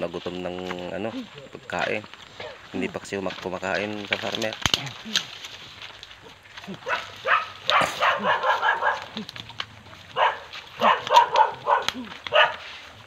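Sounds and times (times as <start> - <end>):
dog barking: 2.4 - 2.6, 6.8 - 9.2, 10.1 - 12.7.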